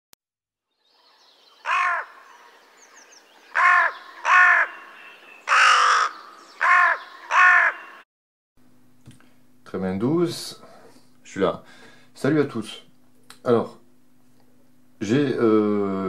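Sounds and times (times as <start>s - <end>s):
crow cawing: 1.6s - 2.7s, 3.4s - 8.0s.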